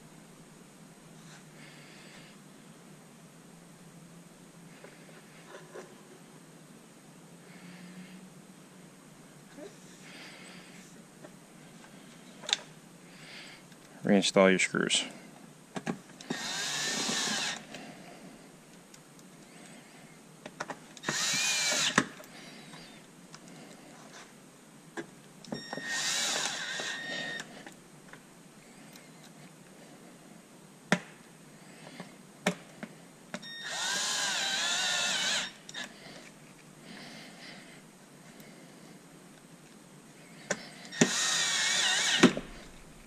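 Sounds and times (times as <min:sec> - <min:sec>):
cordless drill whirring: 0:16.2 - 0:17.8, 0:21.0 - 0:22.2, 0:25.6 - 0:27.5, 0:33.4 - 0:36.0, 0:40.8 - 0:42.9.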